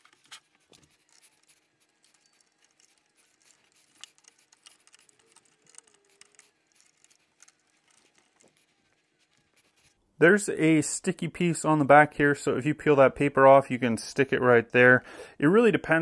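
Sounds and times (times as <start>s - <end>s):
screwdriver clicking and scraping: 0.0s - 9.8s.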